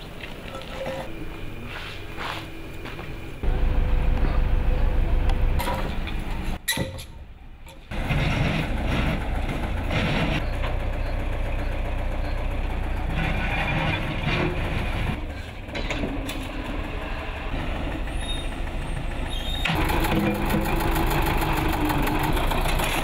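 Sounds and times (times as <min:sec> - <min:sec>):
backhoe engine running: 0:03.4 - 0:06.6, 0:07.9 - 0:23.0.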